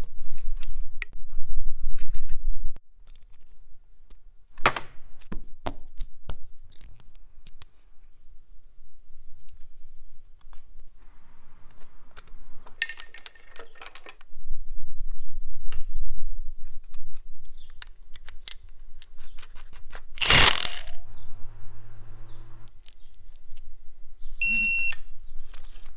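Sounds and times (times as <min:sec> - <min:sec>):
small metal clicks: 0:03.0 - 0:03.5, 0:11.7 - 0:14.9, 0:16.6 - 0:21.0
low rumble: 0:20.8 - 0:22.7.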